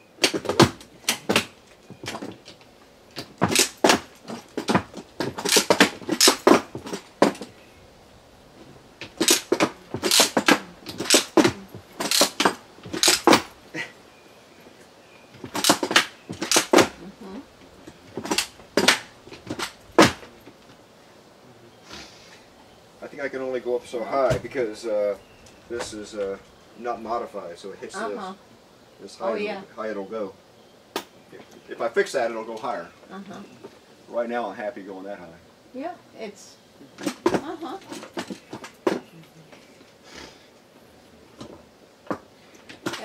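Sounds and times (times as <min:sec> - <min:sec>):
stilts clicking and knocking: 0:00.0 - 0:07.6, 0:08.6 - 0:13.9, 0:14.7 - 0:20.8, 0:36.9 - 0:39.2, 0:41.3 - 0:43.0.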